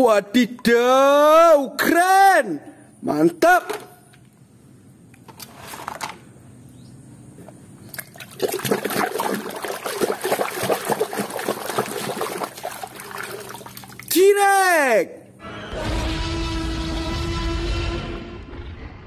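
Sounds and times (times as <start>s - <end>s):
water splashing in a plastic tub: 7.9s - 14.2s.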